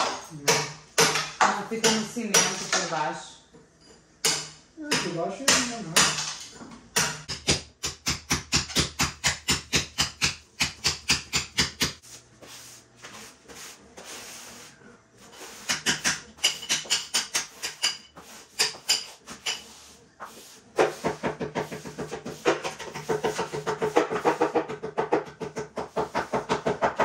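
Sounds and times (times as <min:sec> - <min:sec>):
hammer striking steel chisel: 0:04.2 - 0:06.4, 0:15.6 - 0:19.8.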